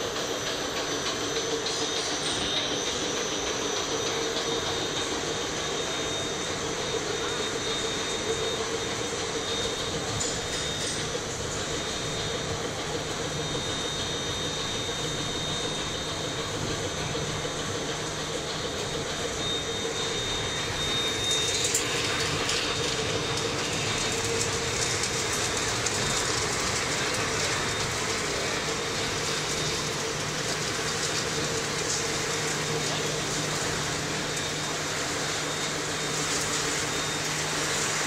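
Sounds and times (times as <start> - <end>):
faint high whine: 0.0 - 38.0
popcorn machine motor and blower hum: 0.0 - 38.0.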